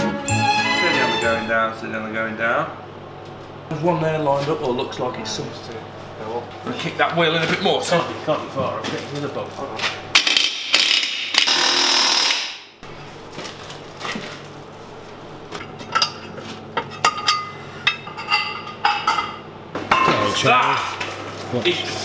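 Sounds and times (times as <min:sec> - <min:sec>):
impact wrench rattling: 0:10.2 - 0:12.5.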